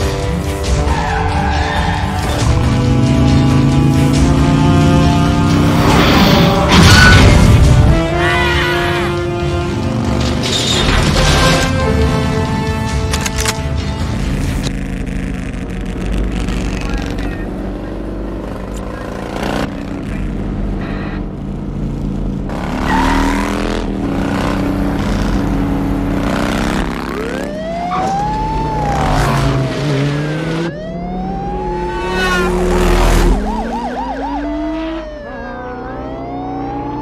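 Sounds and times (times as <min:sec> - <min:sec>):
motorcycle engines revving: 0:00.0 - 0:06.8, 0:13.8 - 0:37.0
police sirens wailing: 0:00.0 - 0:10.3, 0:22.5 - 0:37.0.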